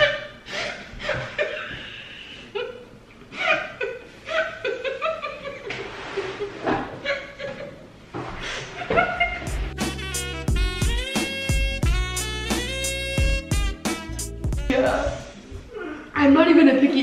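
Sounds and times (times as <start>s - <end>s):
women laughing: 0.0s - 9.7s.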